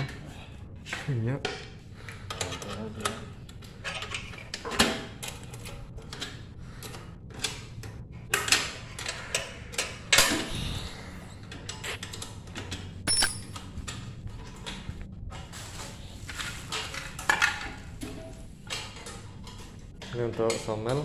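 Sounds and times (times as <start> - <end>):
metal parts clicking and clinking: 13.1 - 13.6.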